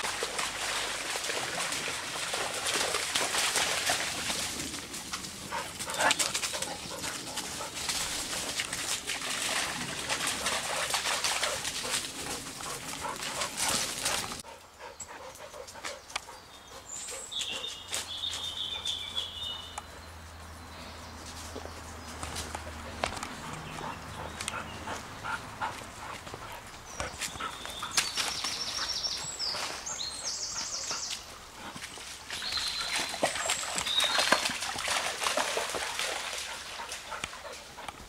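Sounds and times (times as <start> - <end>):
dog splashing through water: 0.0 - 14.4, 27.0 - 37.7
water rushing in a stream: 0.0 - 14.4, 27.8 - 37.8.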